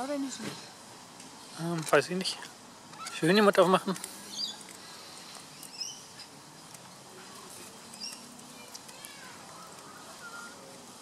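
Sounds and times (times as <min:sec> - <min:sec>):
bird pecking in wood-chip mulch: 0:00.3 - 0:11.0
bird chirps: 0:04.2 - 0:04.7, 0:05.5 - 0:06.4, 0:07.9 - 0:08.4.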